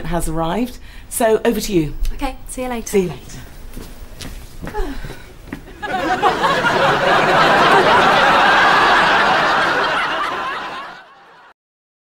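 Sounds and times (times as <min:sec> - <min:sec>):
studio audience laughing: 0:05.7 - 0:11.6.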